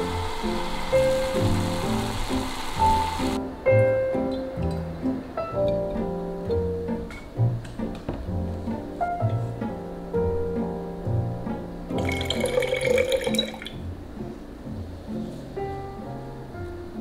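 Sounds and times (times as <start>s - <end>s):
background music with plucked notes: 0.0s - 17.0s
tea pouring into milk: 12.0s - 13.8s.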